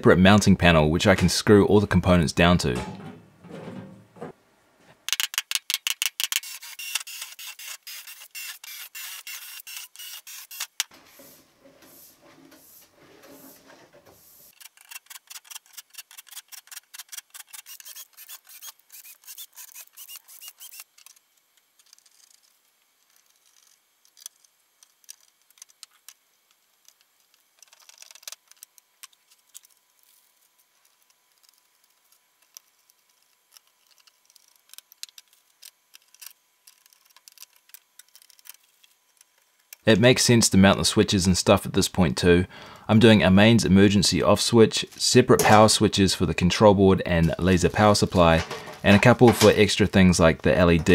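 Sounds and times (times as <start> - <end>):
small parts ticking and tapping: 5.1 - 10.9, 14.5 - 39.9
cordless drill boring through metal: 6.4 - 10.6.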